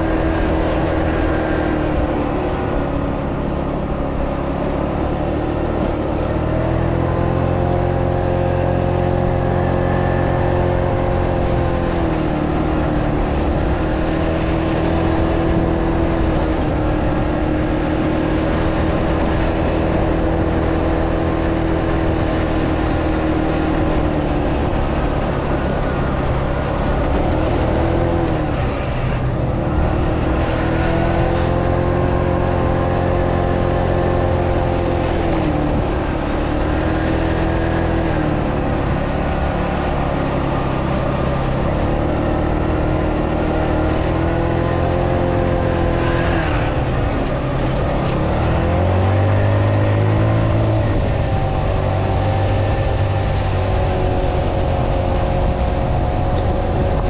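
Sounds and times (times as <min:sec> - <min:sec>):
scooter engine revving: 0:24.6 - 0:33.3.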